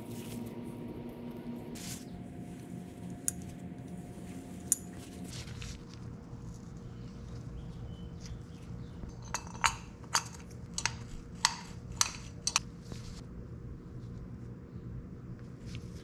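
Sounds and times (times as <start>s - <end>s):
steady low hum: 0.0s - 16.0s
metal parts clinking: 9.2s - 11.0s.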